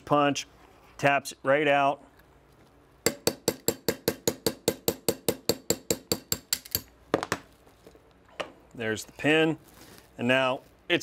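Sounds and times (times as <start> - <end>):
hammer tapping metal punch: 3.1 - 7.3.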